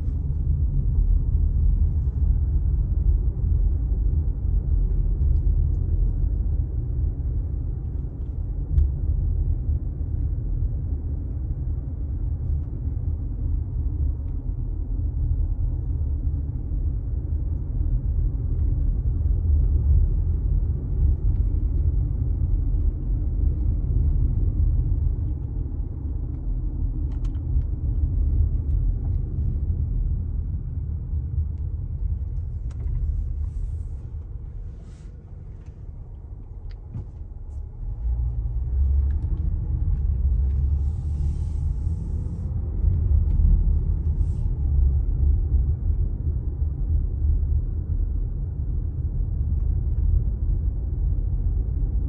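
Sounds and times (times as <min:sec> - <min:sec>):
car engine and tyres rumbling: 0:00.0 - 0:52.0.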